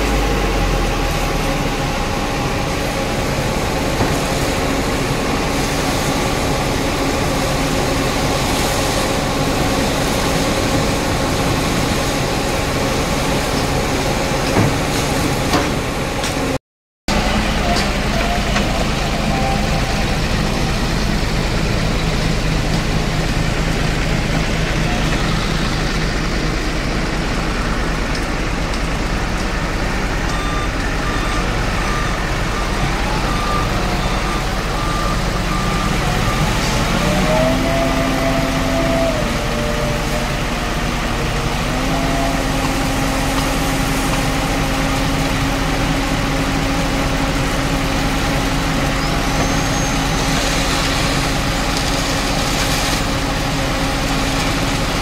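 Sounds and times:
diesel engine running: 0.0s - 55.0s
short beeps: 30.3s - 36.5s.

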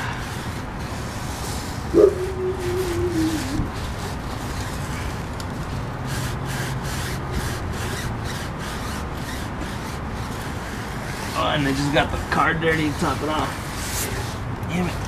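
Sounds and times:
brush scrubbing rubber tire: 0.0s - 15.0s.

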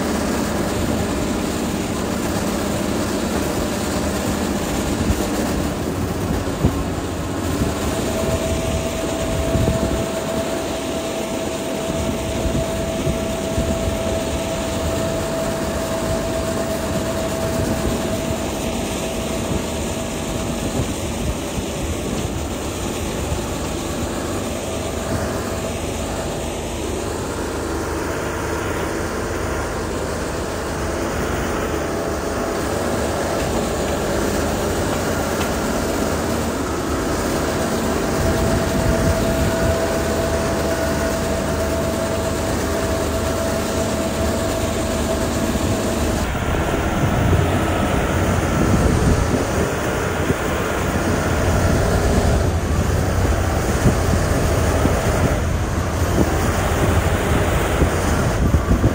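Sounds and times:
heavy machinery diesel engine: 0.0s - 58.9s
steady whine: 0.0s - 58.9s.

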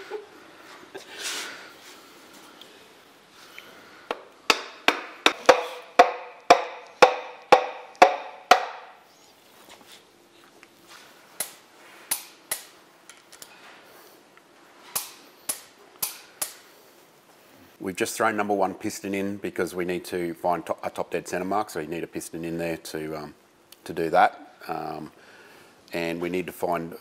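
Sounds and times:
sharp metallic knocks: 4.5s - 9.0s.

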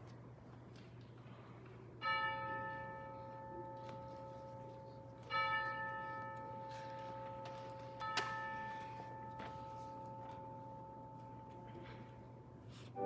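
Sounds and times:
church bell tolling: 2.0s - 12.4s.

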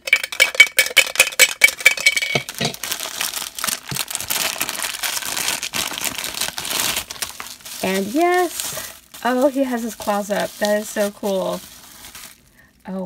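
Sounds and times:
soda can clinking and rattling: 0.0s - 5.2s
plastic bag crinkling: 0.3s - 13.0s.

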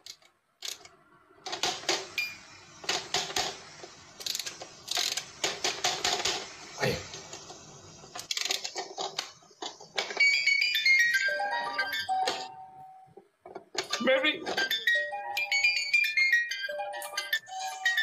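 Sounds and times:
electronic clicks and rattles: 1.5s - 12.5s
descending electronic chime notes: 10.3s - 13.1s, 14.8s - 18.0s.

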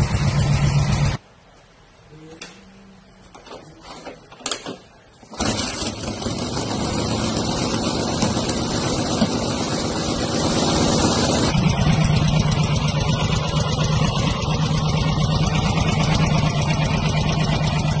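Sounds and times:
motorcycle engine idling: 0.0s - 1.2s, 6.0s - 18.0s.

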